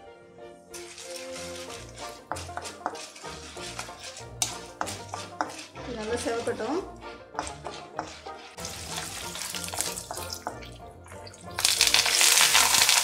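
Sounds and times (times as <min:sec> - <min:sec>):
lentils frying gently in oil: 0:00.7 - 0:13.0
wooden spatula stirring: 0:00.7 - 0:13.0
loud sizzle in hot oil: 0:00.8 - 0:05.8, 0:08.0 - 0:13.0.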